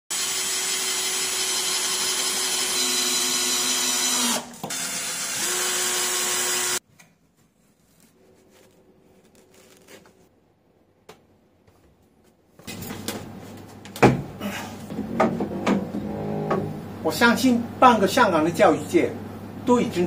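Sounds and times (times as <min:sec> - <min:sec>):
cordless drill whine: 0:00.1 - 0:06.8.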